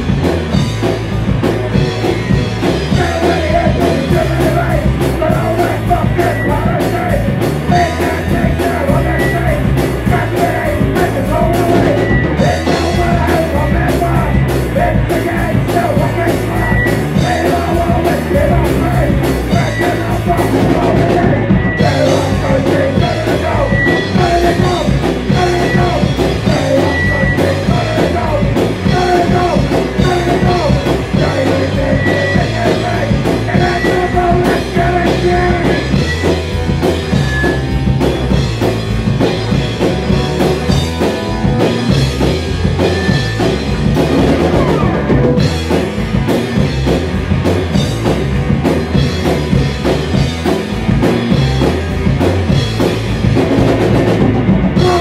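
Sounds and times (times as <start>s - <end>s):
drum kit: 0.0s - 55.0s
punk band playing: 0.0s - 55.0s
person singing: 2.8s - 36.5s, 54.8s - 55.0s.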